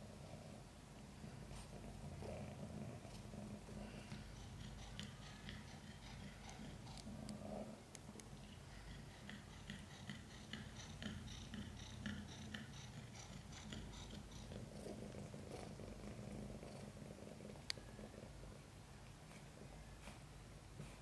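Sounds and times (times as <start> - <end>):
cat purring: 0.0 - 21.0
cat panting: 2.5 - 7.6, 8.5 - 17.5.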